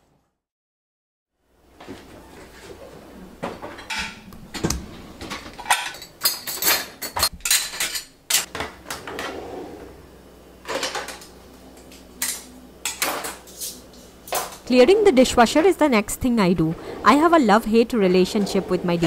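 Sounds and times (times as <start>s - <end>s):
crockery and cutlery clinking: 5.3s - 8.5s.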